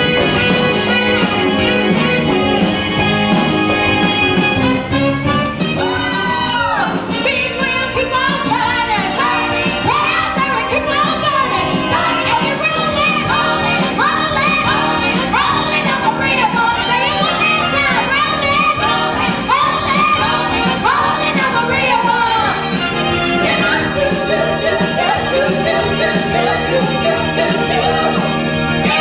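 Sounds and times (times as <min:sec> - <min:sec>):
women singing over a band: 0:06.0 - 0:29.0.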